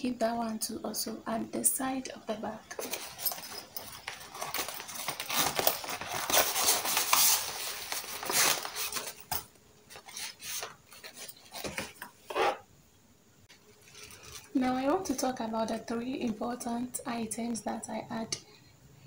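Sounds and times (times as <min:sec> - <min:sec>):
plastic bags rustling and crinkling: 0:02.7 - 0:12.5, 0:13.6 - 0:15.2.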